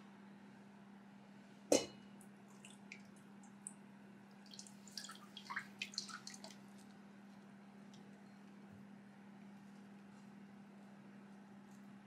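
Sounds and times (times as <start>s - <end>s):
liquid dripping through strainer: 2.2s - 6.9s.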